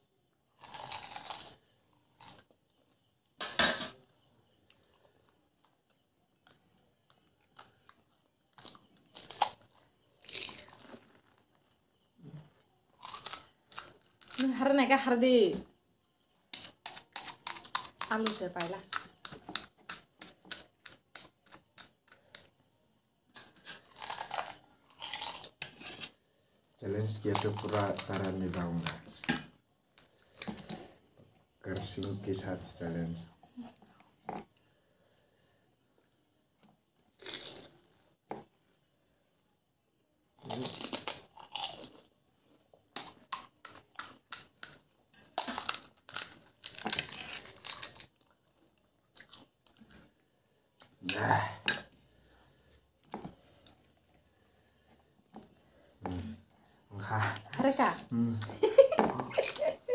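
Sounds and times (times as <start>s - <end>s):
crisp shells cracking: 0.6s - 2.4s, 8.5s - 11.4s, 23.6s - 25.6s, 27.3s - 29.4s, 40.4s - 41.9s, 43.0s - 48.2s
loud close-up crunching: 0.6s - 2.4s, 13.0s - 14.4s, 23.6s - 25.6s, 40.4s - 42.0s, 45.2s - 48.3s.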